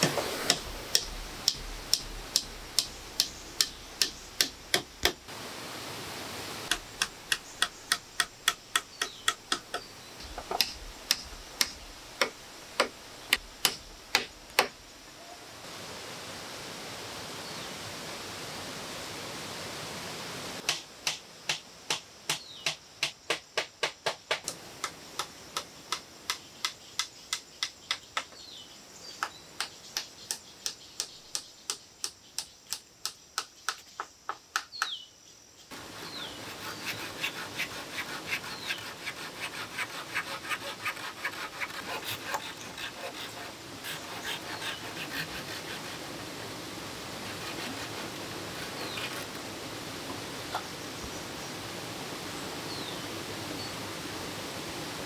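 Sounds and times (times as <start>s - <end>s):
hammering on bamboo and timber: 0.0s - 5.3s, 6.7s - 14.8s, 20.6s - 28.4s, 29.2s - 35.0s, 35.8s - 46.1s
waterfall rushing: 5.2s - 7.4s, 35.7s - 36.4s.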